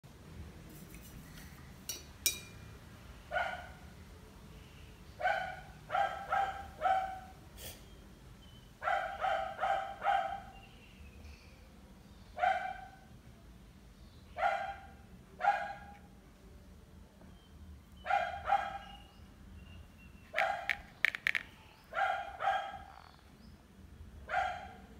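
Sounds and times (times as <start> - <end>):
dog barking: 3.3 - 3.8, 5.2 - 7.4, 8.8 - 10.6, 12.4 - 13.1, 14.4 - 16.0, 18.0 - 19.1, 20.3 - 20.8, 21.9 - 23.0, 24.3 - 24.9.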